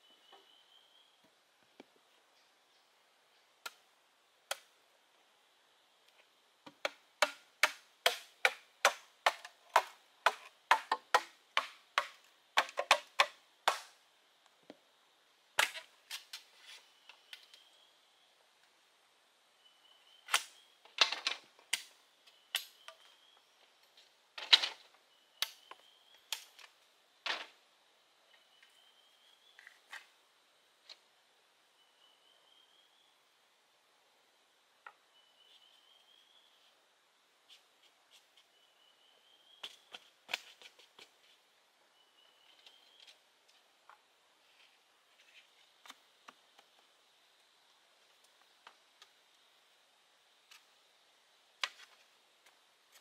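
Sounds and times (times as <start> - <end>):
hand tool striking bamboo: 6.7 - 14.0.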